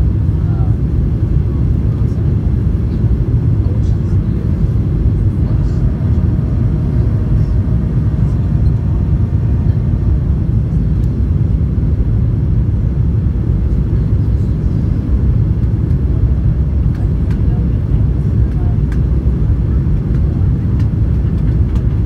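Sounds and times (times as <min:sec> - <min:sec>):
jet engines rumbling: 0:00.0 - 0:22.0
rushing airflow: 0:02.4 - 0:19.2.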